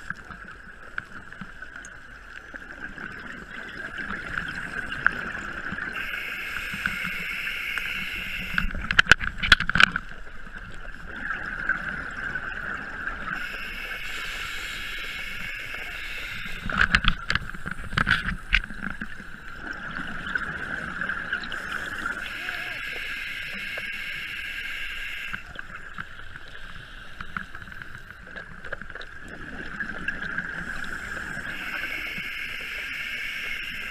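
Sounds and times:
steady high hum: 5.9 - 9.2, 13.0 - 19.9, 20.6 - 26.0
regulator inhale hiss: 6.0 - 8.7, 13.4 - 17.0, 22.2 - 25.5.

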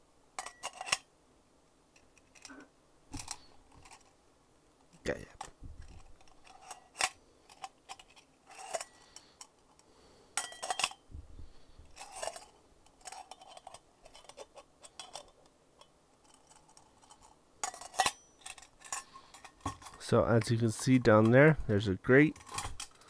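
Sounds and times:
glass jar clicks and clinks: 10.4 - 11.0.

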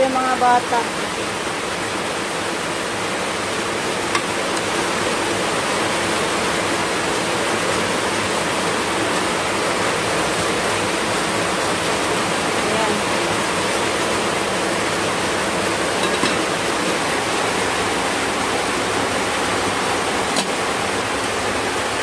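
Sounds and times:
heavy rain pouring: 0.0 - 22.0.

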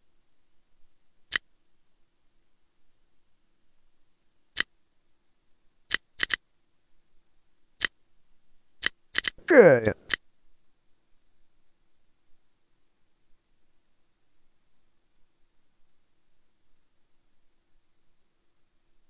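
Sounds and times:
computer input clicks: 5.9 - 6.4, 8.8 - 9.4.

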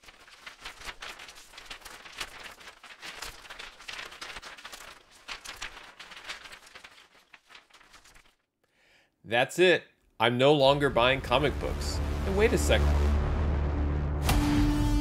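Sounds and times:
packaging rustling and crinkling: 0.0 - 8.5.

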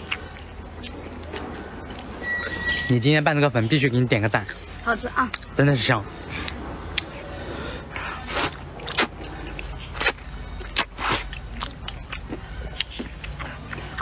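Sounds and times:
chewing: 0.0 - 2.2, 8.2 - 14.0
lip smacks: 8.2 - 14.0.

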